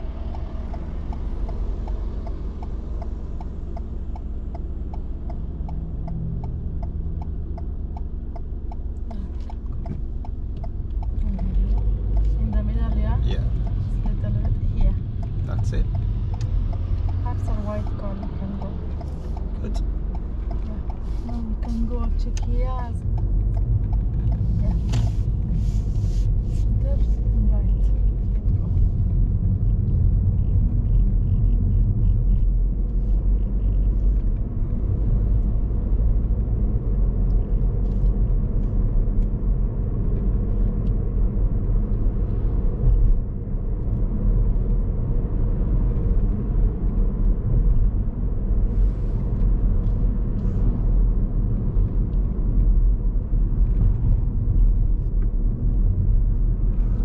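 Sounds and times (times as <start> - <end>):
car engine rumble: 0.0 - 57.0
road noise: 0.0 - 57.0.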